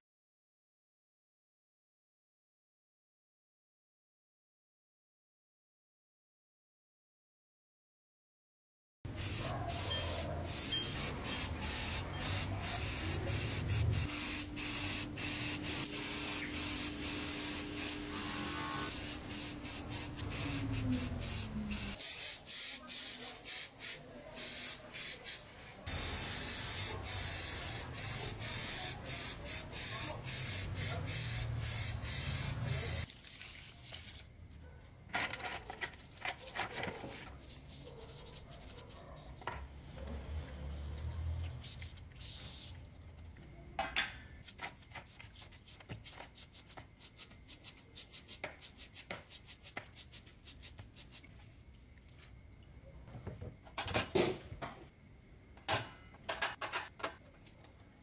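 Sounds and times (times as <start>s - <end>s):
aerosol spray paint hissing: 9.1s - 33.1s, 41.5s - 42.7s
brush scrubbing metal parts: 35.6s - 39.0s, 44.4s - 51.3s.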